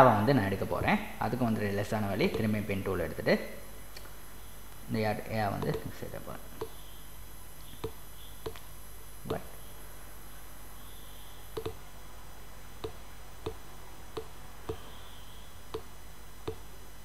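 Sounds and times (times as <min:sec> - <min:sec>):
faint steady hiss: 0:00.0 - 0:17.0
computer mouse button clicking: 0:11.6 - 0:11.8, 0:12.8 - 0:13.6, 0:15.7 - 0:16.6.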